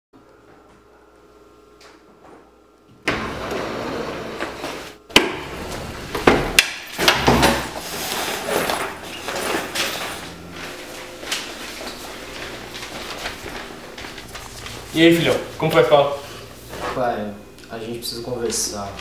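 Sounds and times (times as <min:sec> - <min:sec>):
sliding door rumbling: 0:03.1 - 0:06.6.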